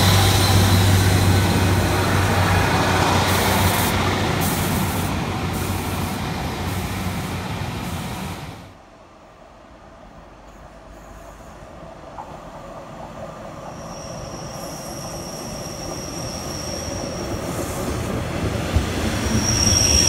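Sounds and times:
train diesel engine hum: 0.0s - 20.0s.

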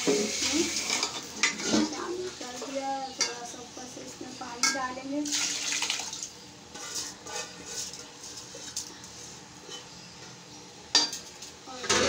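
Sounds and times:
metal spoon clinking on pot: 4.6s - 4.8s.

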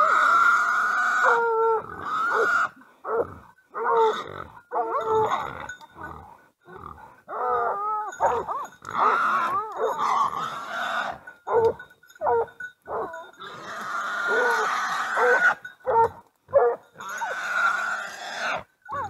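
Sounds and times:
long rough cries: 0.0s - 2.8s, 13.0s - 15.7s
hounds barking: 1.2s - 5.4s, 7.2s - 13.4s, 14.2s - 17.4s, 18.4s - 19.0s.

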